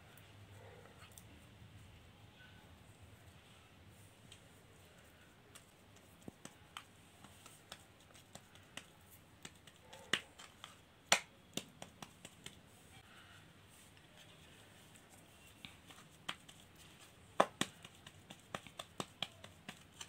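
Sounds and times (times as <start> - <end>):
fingers patting dough on wood: 5.4 - 12.7, 15.4 - 20.0.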